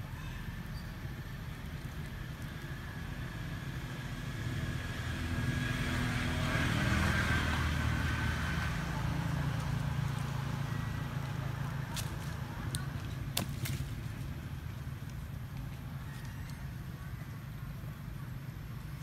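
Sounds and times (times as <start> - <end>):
vehicle passing by: 2.6 - 18.8.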